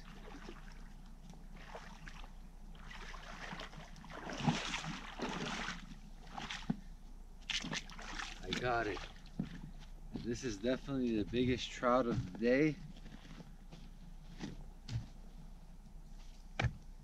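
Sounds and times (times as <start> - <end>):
person wading through water: 0.0 - 10.4.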